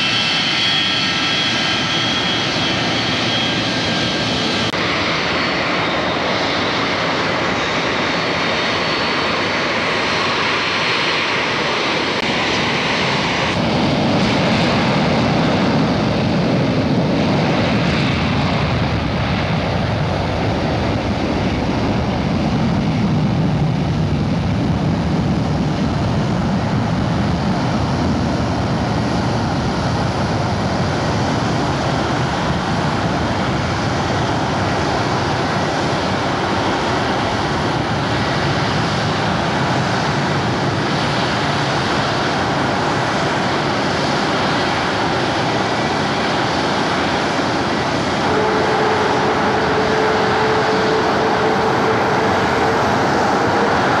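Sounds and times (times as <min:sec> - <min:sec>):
jet engines roaring at takeoff: 0:00.0 - 0:54.0
steady whining tone: 0:26.6 - 0:54.0.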